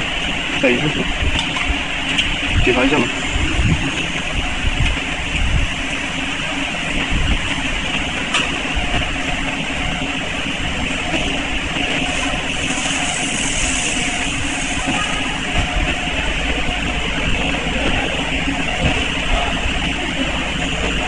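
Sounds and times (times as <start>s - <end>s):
machine running with low rumble: 0.0s - 21.0s
high hiss: 12.0s - 15.5s.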